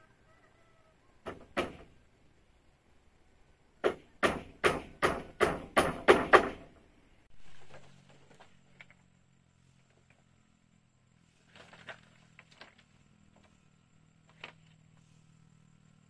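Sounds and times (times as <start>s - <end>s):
hand tool striking wood: 1.2s - 1.9s, 3.8s - 6.8s.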